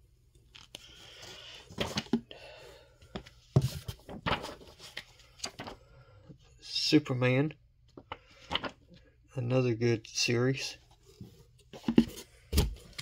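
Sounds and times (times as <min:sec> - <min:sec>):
paper rustling: 0:03.6 - 0:05.8.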